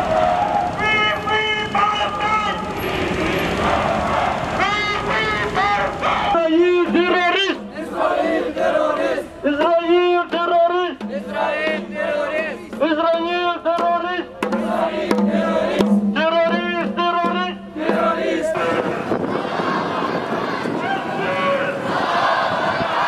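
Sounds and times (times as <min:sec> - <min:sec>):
man chanting: 0:16.2 - 0:17.6.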